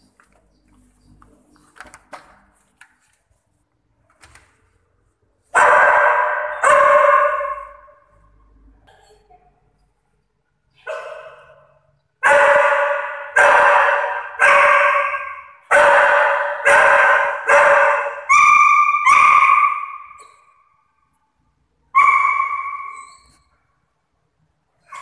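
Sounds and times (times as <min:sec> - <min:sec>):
dog barking in echoing room: 0:05.4 - 0:08.6, 0:10.6 - 0:25.0.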